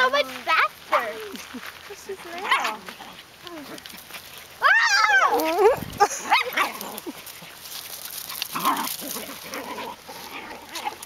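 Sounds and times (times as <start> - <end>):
puppies yipping and barking: 2.2 - 11.0.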